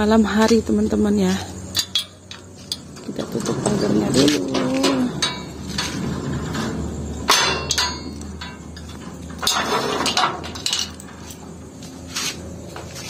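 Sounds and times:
metallic ringing: 1.6 - 11.3
metal gate clanking: 1.7 - 11.5
sharp metallic knocks: 7.2 - 11.0.

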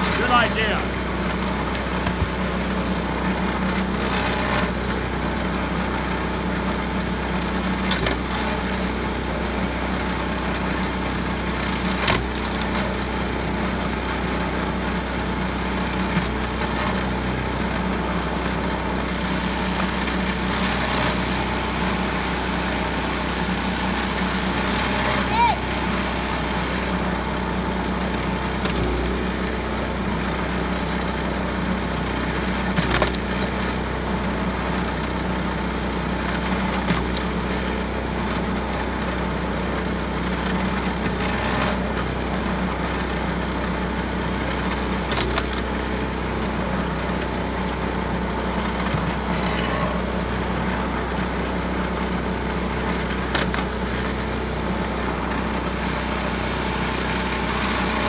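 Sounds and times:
small gas engine running: 0.0 - 58.0
wood splitting crack: 0.2 - 2.8, 7.8 - 8.9, 11.8 - 13.1, 15.8 - 16.7, 28.4 - 29.7, 32.5 - 33.8, 36.5 - 38.5, 44.7 - 46.2, 53.2 - 54.2.

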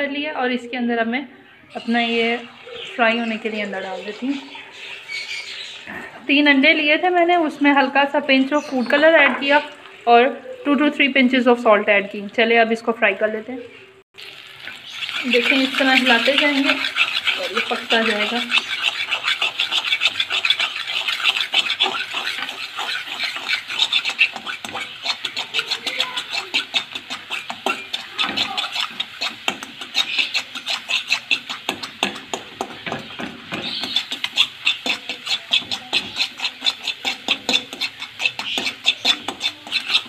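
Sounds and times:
spatula scraping frying pan: 1.7 - 11.6, 14.2 - 40.0.

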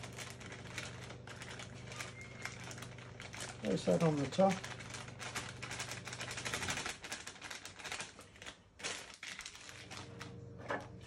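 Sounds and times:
packet crinkling: 0.0 - 11.0.

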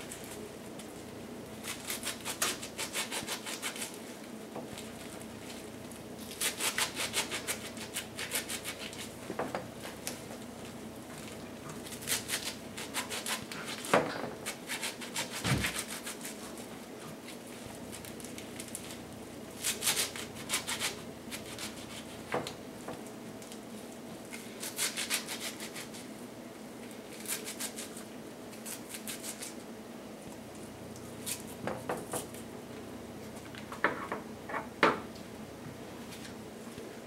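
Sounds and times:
knife cutting salad leaves: 1.6 - 4.0, 6.2 - 9.1, 11.2 - 19.0, 19.6 - 22.2, 24.3 - 26.1, 27.1 - 29.6, 31.2 - 32.4.

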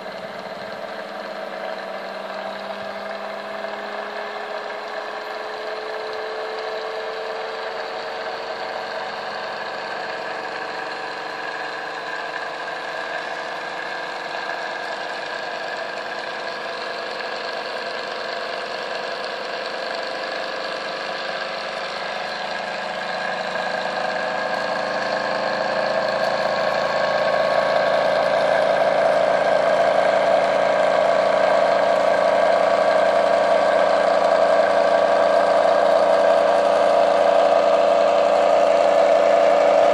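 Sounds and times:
motor rotor humming: 0.0 - 39.9.

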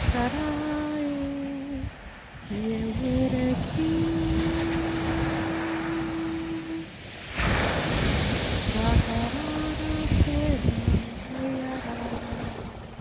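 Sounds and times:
person humming held notes: 2.5 - 6.9, 8.8 - 12.5.

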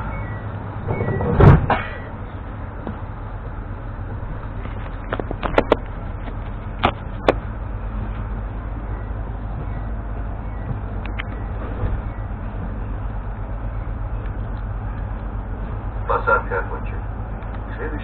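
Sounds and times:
low background rumble: 0.0 - 18.0.

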